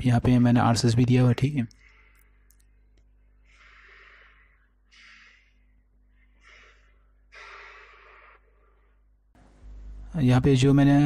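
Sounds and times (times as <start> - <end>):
person breathing faintly: 1.7 - 9.3.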